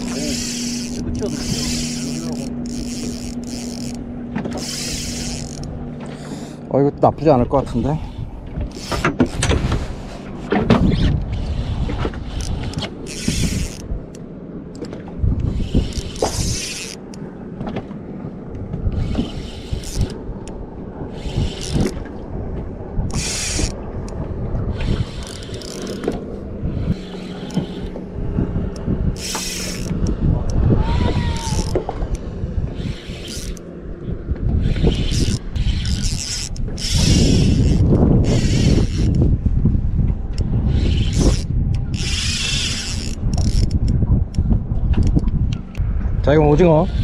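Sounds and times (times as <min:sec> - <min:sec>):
fishing reel cranking: 0:00.0 - 0:06.7, 0:07.5 - 0:10.1, 0:10.8 - 0:14.2, 0:14.8 - 0:17.2, 0:18.9 - 0:22.0, 0:23.1 - 0:26.1, 0:26.7 - 0:28.0, 0:28.7 - 0:32.2, 0:32.8 - 0:33.7, 0:34.5 - 0:39.3, 0:40.4 - 0:44.0
reel clicks: 0:00.0 - 0:06.7, 0:08.7 - 0:17.3, 0:18.5 - 0:22.2, 0:23.0 - 0:28.1, 0:28.7 - 0:33.7, 0:34.4 - 0:39.3, 0:40.3 - 0:45.9
boat motor humming: 0:00.0 - 0:47.0.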